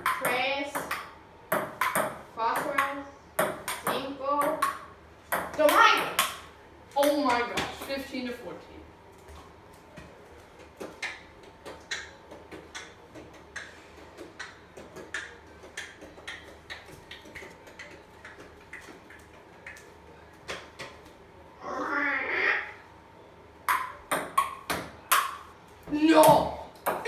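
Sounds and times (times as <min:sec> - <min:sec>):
ping-pong ball bouncing: 0:00.0 - 0:07.9, 0:10.8 - 0:19.9, 0:23.7 - 0:25.5, 0:26.2 - 0:27.0.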